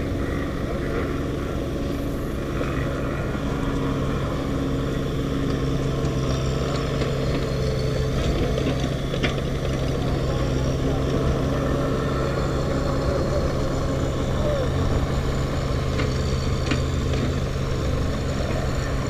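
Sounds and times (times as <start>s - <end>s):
diesel engine idling: 0.0s - 19.0s.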